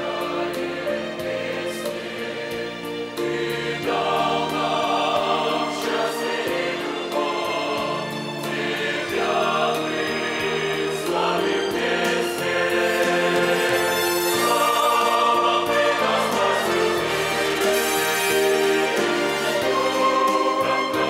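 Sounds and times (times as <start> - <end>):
mixed choir singing a hymn: 0.0 - 21.0.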